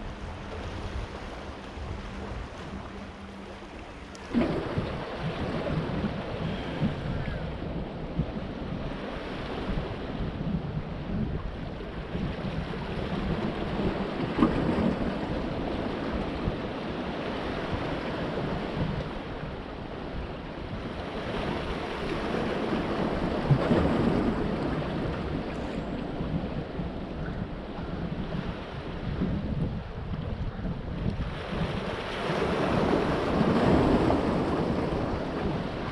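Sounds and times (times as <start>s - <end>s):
wind noise on microphone: 0.0s - 35.9s
waves breaking on rocks: 4.1s - 7.4s, 21.1s - 26.7s, 31.0s - 35.9s.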